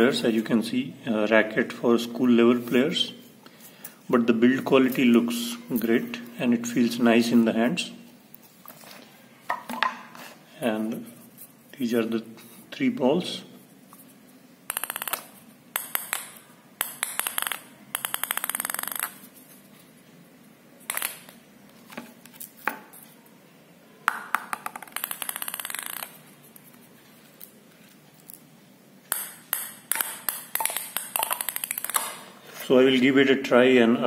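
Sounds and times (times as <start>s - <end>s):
table tennis balls bouncing on floor: 9.5s - 10.1s, 14.7s - 19.3s, 20.9s - 21.4s, 24.0s - 26.3s, 29.1s - 32.4s.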